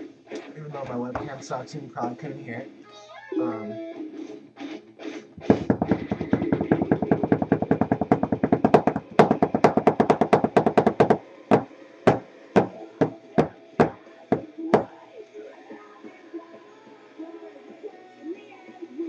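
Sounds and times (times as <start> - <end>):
quiet song playing: 0.0 - 19.0
rapid knocking on hard surface: 5.4 - 14.9.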